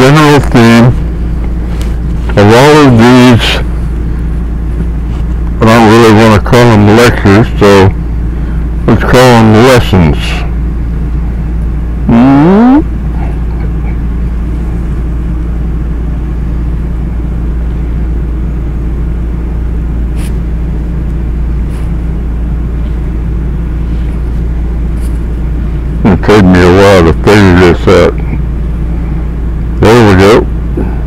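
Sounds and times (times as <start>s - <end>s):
low rumbling hum: 0.0s - 31.0s
short rising voice sound: 12.1s - 13.4s.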